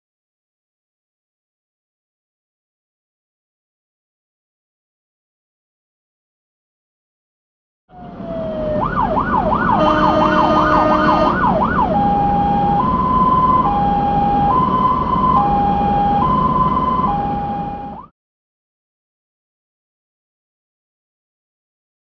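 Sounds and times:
engine and road noise: 7.9 - 18.1
fire engine siren wailing: 7.9 - 18.1.

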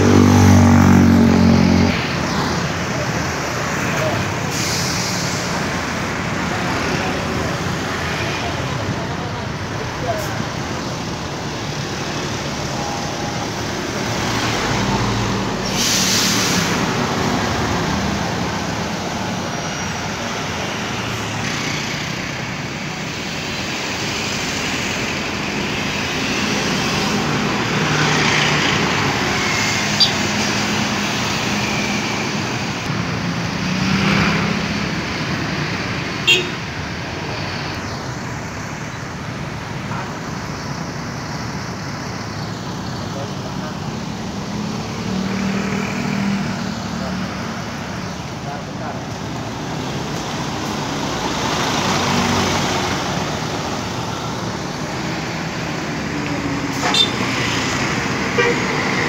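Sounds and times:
motorcycles passing: 0.0 - 4.4, 16.9 - 36.5, 41.7 - 59.0
buses passing: 0.0 - 59.0
cars passing: 0.0 - 59.0.

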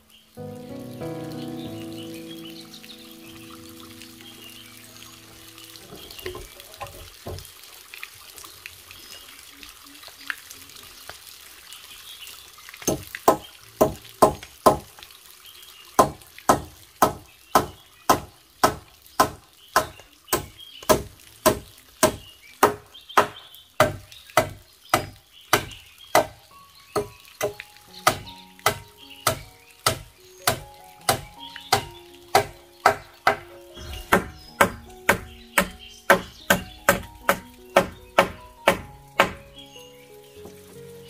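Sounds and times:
background music: 0.0 - 7.0, 26.1 - 41.0
hammer knocking on wood: 12.9 - 14.9, 28.1 - 39.4.

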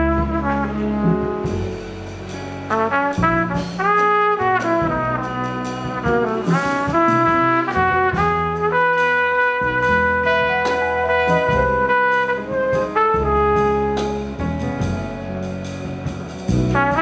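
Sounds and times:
piano bass and drums: 0.0 - 17.0
trumpet playing jazz melody: 0.0 - 17.0.

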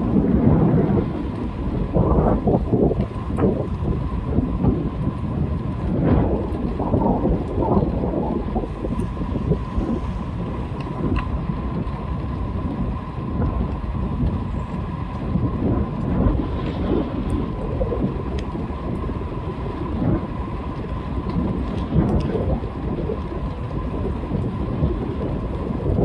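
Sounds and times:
bicycle tyre rumble on road: 0.0 - 26.0
wind buffeting microphone: 0.0 - 26.0
light ticks: 10.6 - 12.4, 13.4 - 15.3, 18.3 - 19.1, 20.7 - 24.6.

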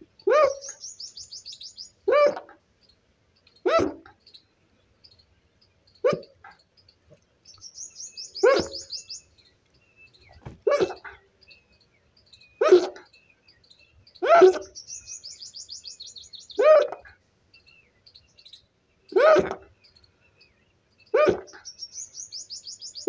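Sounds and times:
high bird chirps: 0.2 - 2.0, 7.5 - 10.4, 11.4 - 16.6, 21.0 - 23.0
dog barking: 3.7 - 4.0, 6.0 - 6.3.

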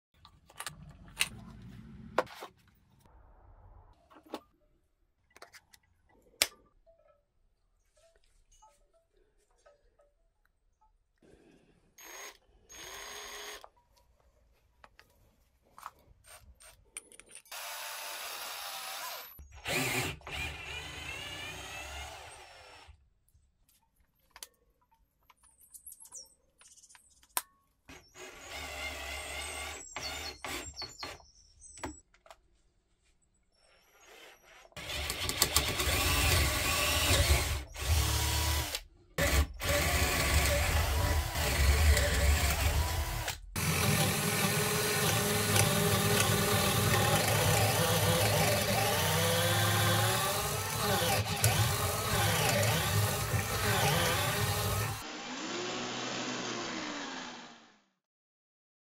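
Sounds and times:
drill boring into wood: 12.0 - 13.6, 17.5 - 22.9, 27.9 - 31.2, 34.0 - 57.8
cordless drill running: 12.0 - 13.7, 17.5 - 22.9, 28.1 - 31.0, 34.1 - 57.7.

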